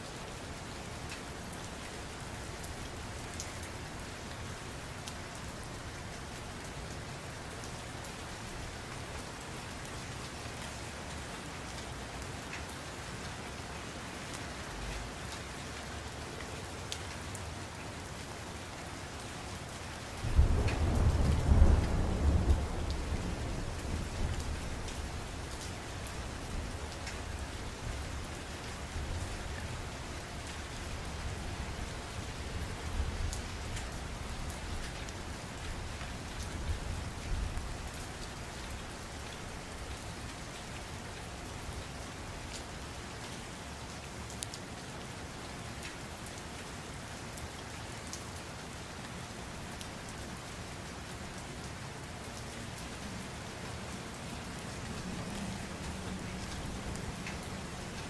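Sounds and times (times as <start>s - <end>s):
rain hissing and pattering: 0.0s - 58.0s
low rumble of thunder: 20.2s - 28.0s.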